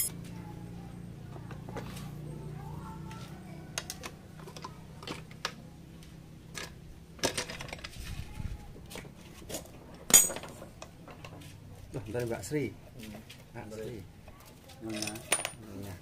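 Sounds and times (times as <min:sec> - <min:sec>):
ringing metal clank: 0:10.1 - 0:10.5.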